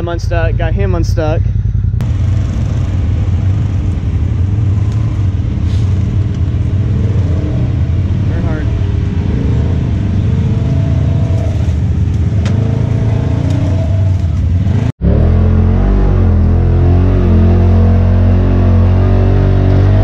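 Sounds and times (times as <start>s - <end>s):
low engine note: 0.0s - 20.0s
utility vehicle engine revving: 2.0s - 20.0s.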